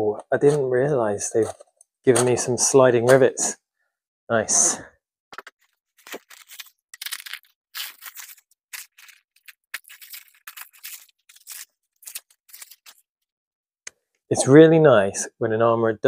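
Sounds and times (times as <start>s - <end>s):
plastic wrapping crinkling: 5.4s - 13.1s.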